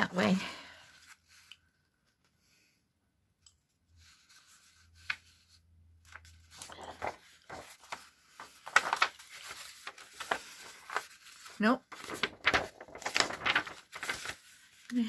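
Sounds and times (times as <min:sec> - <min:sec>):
paper crackling: 0:04.0 - 0:15.0
paper rustling: 0:04.0 - 0:15.0.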